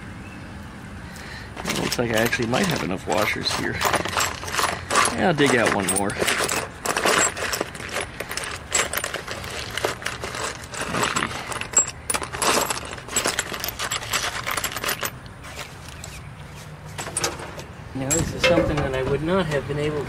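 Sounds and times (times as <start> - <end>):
metal hardware clinking: 1.6 - 15.3, 16.9 - 19.2.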